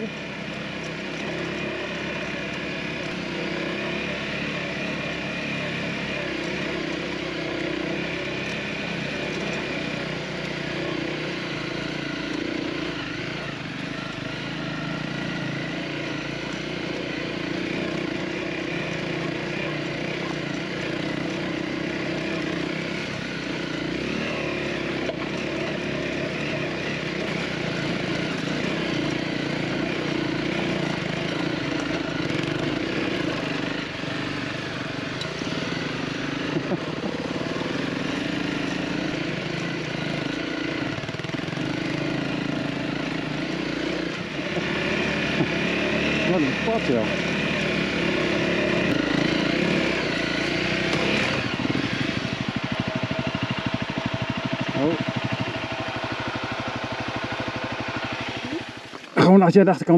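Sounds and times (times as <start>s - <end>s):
motorcycle engine running at low revs: 0.0s - 59.9s.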